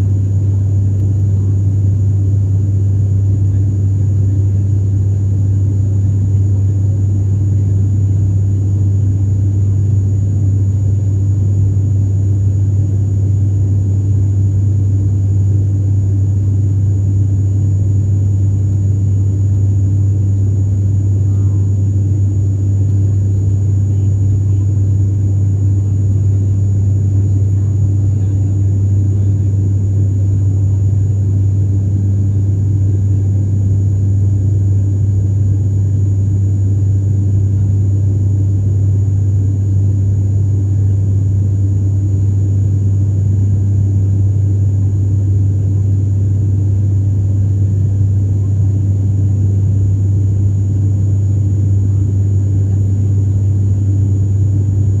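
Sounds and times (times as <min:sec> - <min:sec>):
turboprop engine cabin drone: 0:00.0 - 0:55.0
faint high whine: 0:19.0 - 0:38.7.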